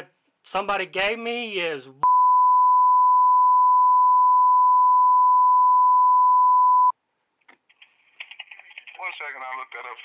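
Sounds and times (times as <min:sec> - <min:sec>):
censor bleep tone: 0:02.0 - 0:07.0.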